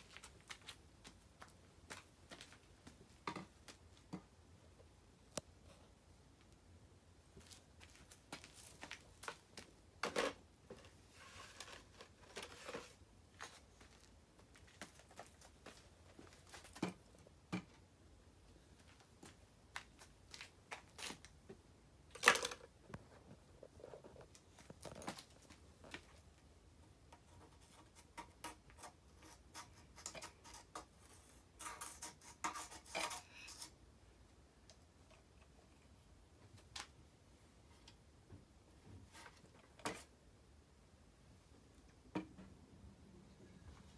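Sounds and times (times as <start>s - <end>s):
small objects clicking and knocking: 22.1s - 23.1s.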